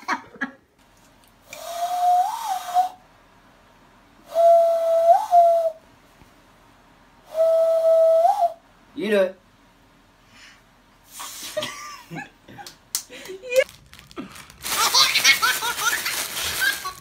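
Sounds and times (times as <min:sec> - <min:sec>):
man whistling through cupped hands: 0:01.6 - 0:03.0, 0:04.3 - 0:05.8, 0:07.3 - 0:08.6.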